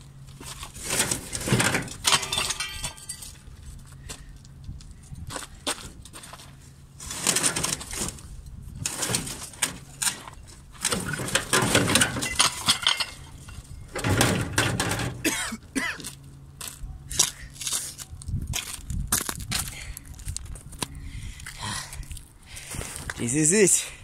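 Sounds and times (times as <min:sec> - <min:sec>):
crunching of charred debris: 0:00.0 - 0:23.4
burnt metal clinking: 0:01.3 - 0:03.4, 0:08.8 - 0:15.9.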